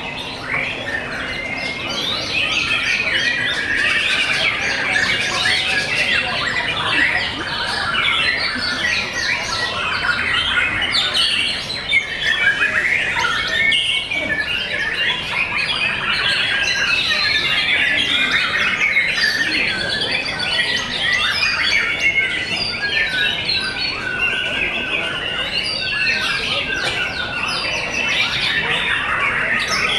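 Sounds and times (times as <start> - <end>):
birds singing: 0.0 - 29.9.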